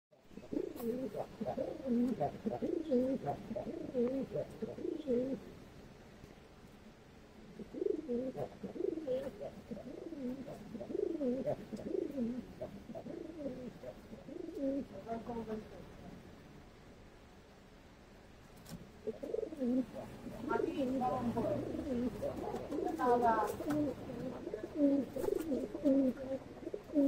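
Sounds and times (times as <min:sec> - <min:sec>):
pigeons cooing: 0:00.2 - 0:05.5, 0:07.5 - 0:15.6, 0:19.0 - 0:27.0.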